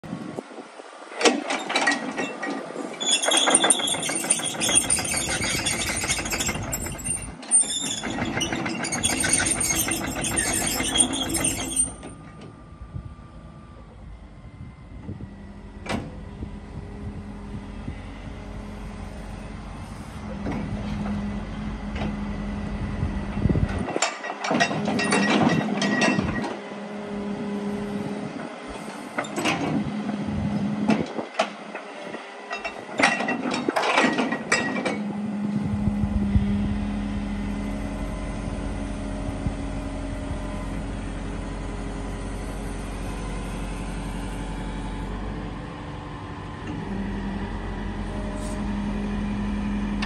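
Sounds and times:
excavator engine rattling: 0:01.2 - 0:26.7.

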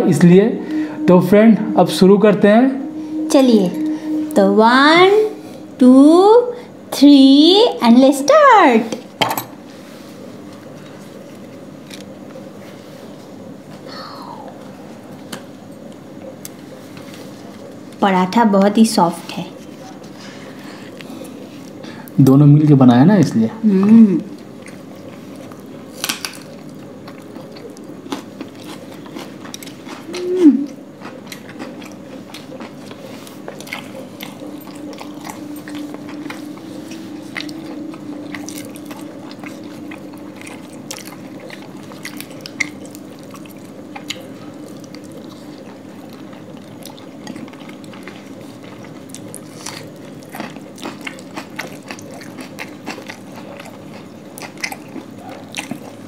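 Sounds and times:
people chewing and biting food: 0:23.6 - 0:56.0.

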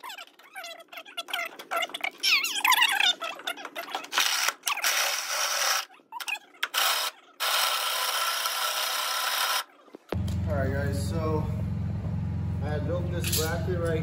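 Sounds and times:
power tool running: 0:10.2 - 0:14.0.

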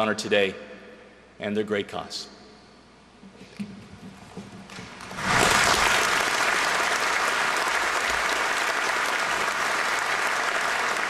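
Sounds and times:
audience applauding: 0:04.7 - 0:11.0.

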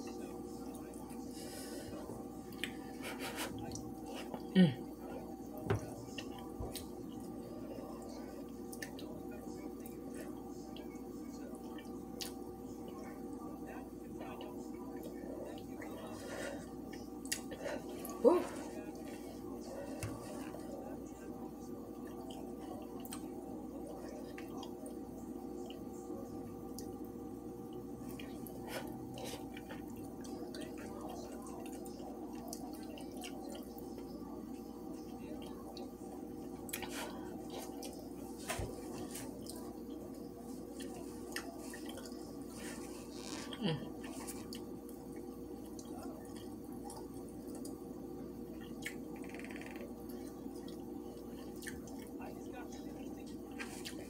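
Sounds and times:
low room hum: 0:00.0 - 0:54.0
wet chewing and lip smacking: 0:48.6 - 0:49.1.

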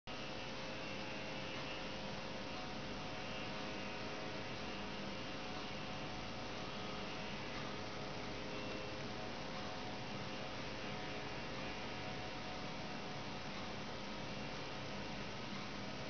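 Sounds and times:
electrical hum with hiss: 0:00.1 - 0:16.0.

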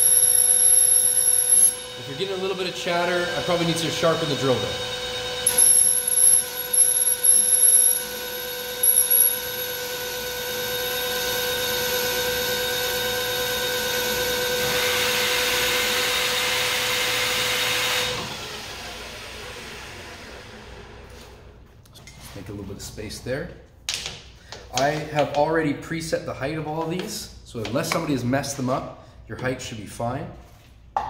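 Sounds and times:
lathe tool chatter whine: 0:00.0 - 0:20.3.

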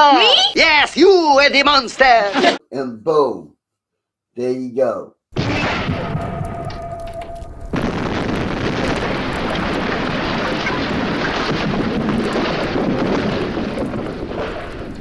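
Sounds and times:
explosion roar: 0:05.4 - 0:15.0.

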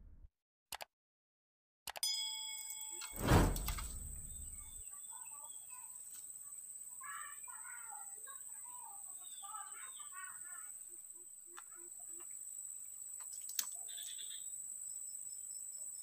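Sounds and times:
sharp click: 0:03.2 - 0:04.7
insect drone: 0:03.2 - 0:16.0.

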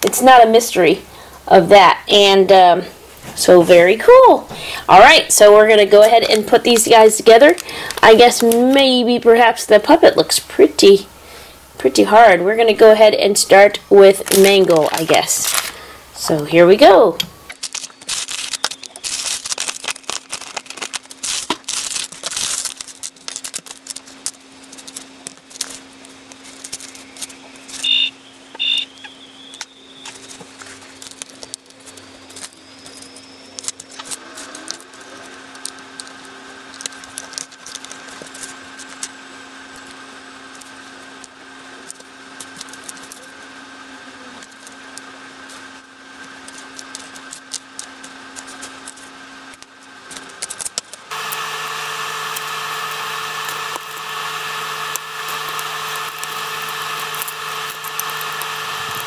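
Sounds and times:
steady low hum: 0:00.0 - 0:17.6, 0:34.8 - 0:59.0
foil bag cut with scissors: 0:14.0 - 0:15.8, 0:17.5 - 0:27.9, 0:30.1 - 0:43.4, 0:44.4 - 0:59.0
short high beeps: 0:27.8 - 0:28.9.

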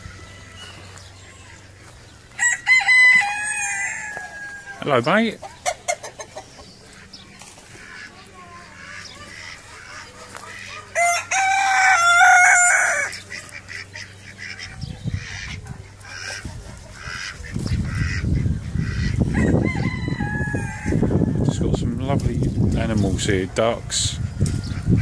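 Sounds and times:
fowl clucking: 0:00.0 - 0:21.2
rooster crowing: 0:02.3 - 0:05.0, 0:10.6 - 0:13.2, 0:19.2 - 0:21.5.

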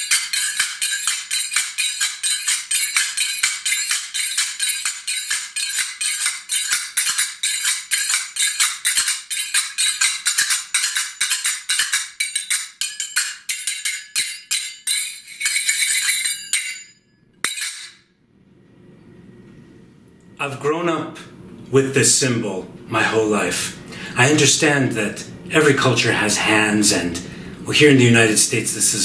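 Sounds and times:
finger cymbals clicking: 0:00.0 - 0:18.0.

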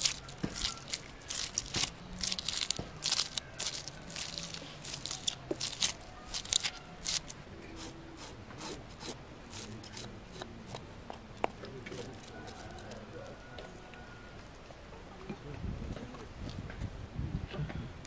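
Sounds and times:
knife scraping fish scales: 0:00.0 - 0:10.4.

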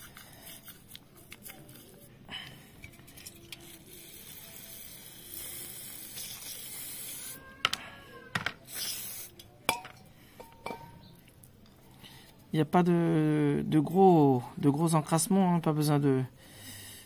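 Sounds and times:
aerosol spray hissing: 0:04.0 - 0:07.4, 0:08.6 - 0:09.4.

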